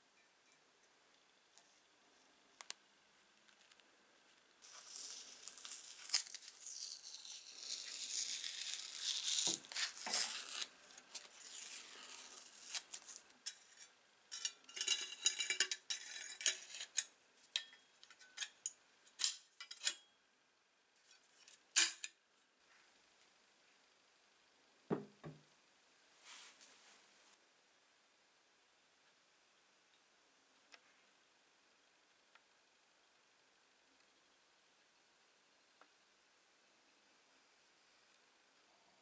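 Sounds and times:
tape being peeled and torn: 4.6s - 13.3s
steel clinking against steel plate: 13.5s - 20.1s.

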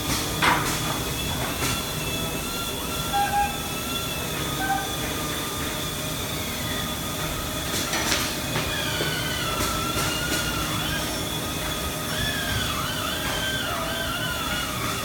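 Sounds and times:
crane hoist mechanical noise: 0.0s - 15.0s
high-pitched squeals: 1.7s - 5.1s.

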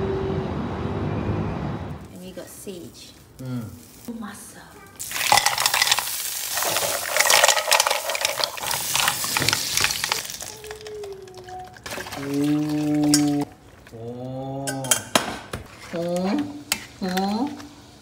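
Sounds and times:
mussels sizzling in pan: 2.5s - 11.4s
spatula clinking and scraping: 5.0s - 11.5s.

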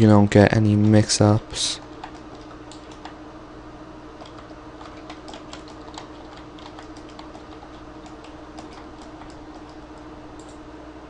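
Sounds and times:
steady low hum: 0.0s - 11.0s
keyboard keys clicking: 1.8s - 3.2s, 4.2s - 10.6s.

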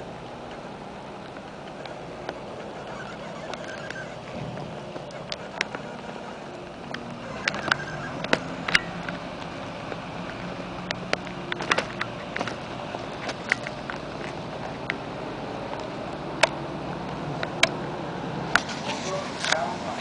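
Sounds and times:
low hum: 0.0s - 18.6s
background traffic noise: 0.0s - 20.0s
sharp clicks and taps: 1.2s - 15.0s.

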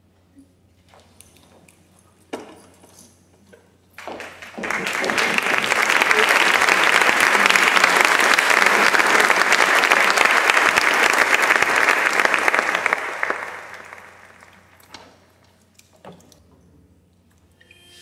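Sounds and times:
audience applauding: 4.0s - 14.8s.

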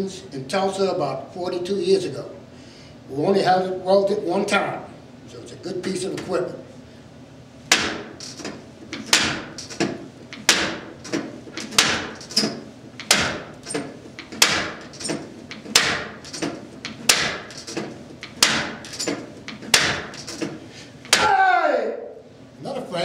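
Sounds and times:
punches hitting padded post: 7.7s - 8.2s, 9.0s - 9.6s, 10.4s - 10.9s, 11.7s - 12.2s, 13.1s - 13.5s, 14.4s - 14.8s, 15.7s - 16.2s, 17.0s - 17.5s, 18.4s - 18.8s, 19.6s - 20.2s, 21.1s - 21.4s.

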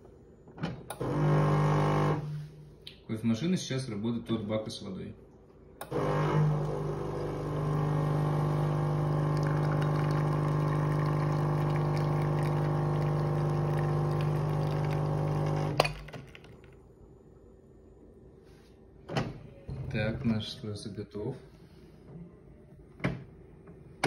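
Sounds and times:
espresso machine pump humming: 1.0s - 2.3s, 5.9s - 16.6s
coffee pouring: 6.0s - 16.8s.

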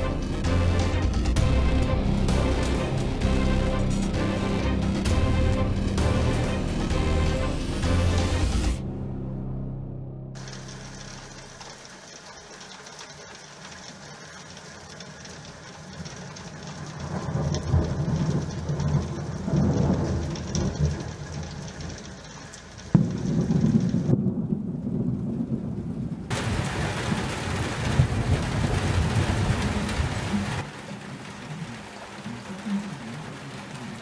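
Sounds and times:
steady rain hiss: 10.4s - 34.0s
thunder rumbling: 16.1s - 32.2s
loud thunder clap: 23.0s - 30.3s.

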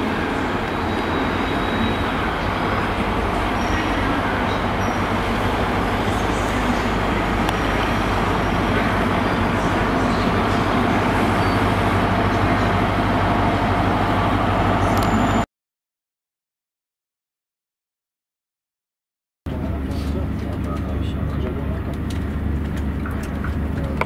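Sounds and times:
train rumble: 0.0s - 15.4s, 19.5s - 24.0s
diesel engine drone: 0.0s - 15.5s, 19.5s - 24.0s.

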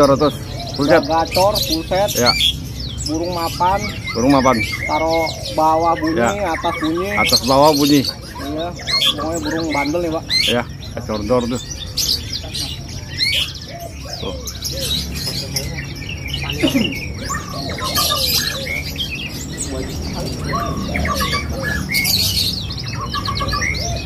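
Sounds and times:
birds calling: 0.0s - 24.0s
canary singing: 0.0s - 24.0s.

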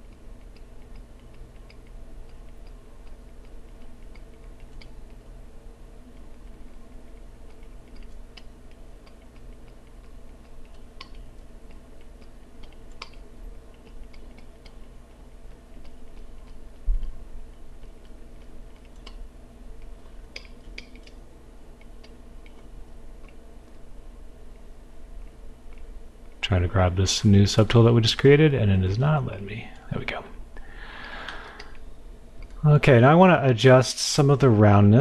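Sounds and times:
computer mouse and keyboard clicks: 0.0s - 5.2s, 6.2s - 14.9s
steady low hum: 0.0s - 35.0s.

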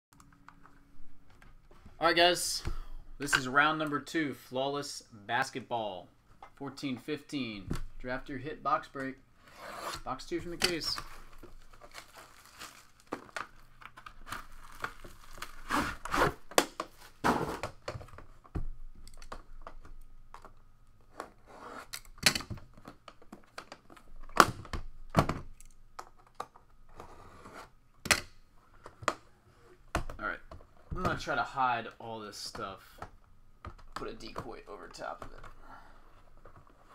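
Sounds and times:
plastic wrap tearing and crinkling: 11.0s - 16.6s.

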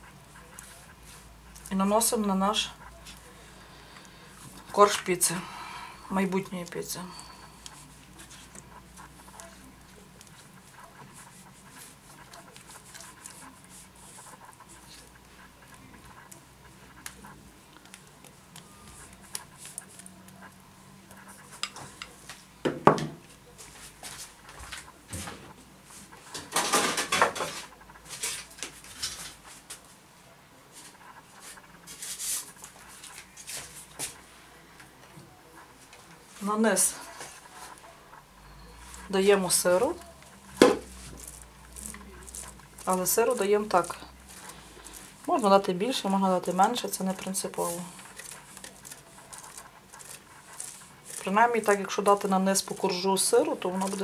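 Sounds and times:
sauce spread on dough: 0.0s - 22.3s, 37.0s - 54.0s.

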